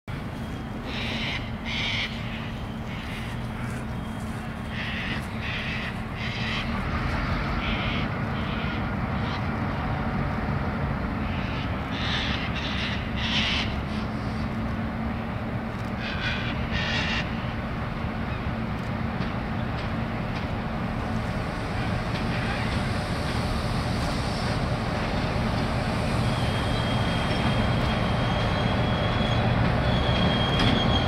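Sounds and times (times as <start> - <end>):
distant locomotive drone: 0.1 - 31.0
crows cawing: 0.9 - 3.8, 4.7 - 6.7.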